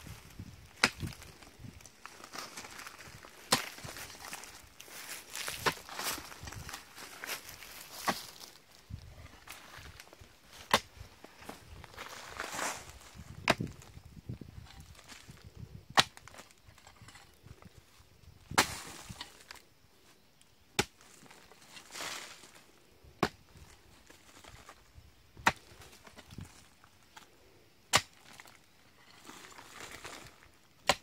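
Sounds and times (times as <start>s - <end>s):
soil scraping hiss: 0.0s - 13.6s, 23.6s - 31.0s
hoe chopping hard earth: 0.8s - 1.2s, 10.7s - 10.9s, 15.9s - 16.2s, 20.8s - 21.0s, 27.9s - 28.4s.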